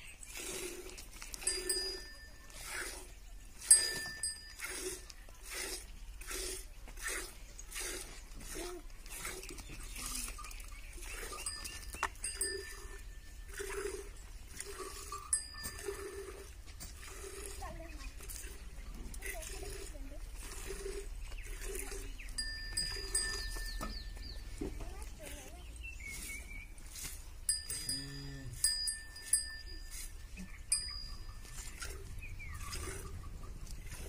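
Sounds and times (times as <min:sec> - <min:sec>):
high ringing tones: 0:01.4 - 0:02.6, 0:03.6 - 0:04.7, 0:10.3 - 0:13.6, 0:14.2 - 0:16.4, 0:22.3 - 0:24.2, 0:27.5 - 0:32.0.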